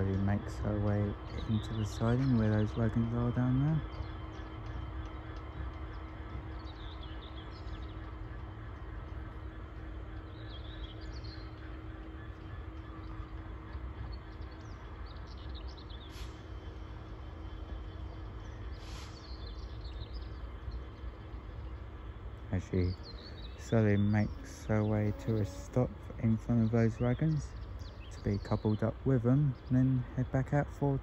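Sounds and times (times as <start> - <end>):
birds chirping: 0.0 - 31.0
diesel locomotive engine rumbling: 0.0 - 31.0.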